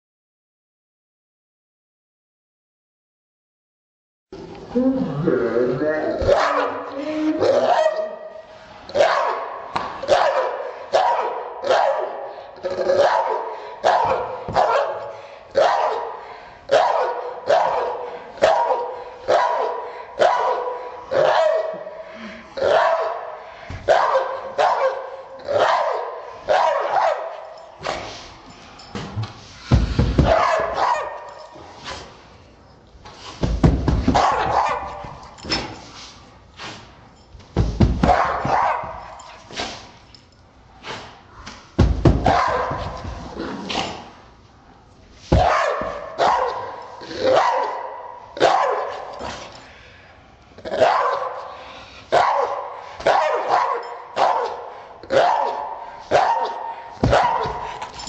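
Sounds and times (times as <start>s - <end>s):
slowed dog barking: 6.2s - 6.8s, 9.0s - 12.2s, 12.9s - 21.8s, 22.6s - 23.2s, 23.9s - 27.3s, 30.2s - 31.3s, 34.1s - 35.0s, 42.2s - 42.8s, 45.4s - 49.1s, 50.8s - 51.4s, 52.2s - 57.6s.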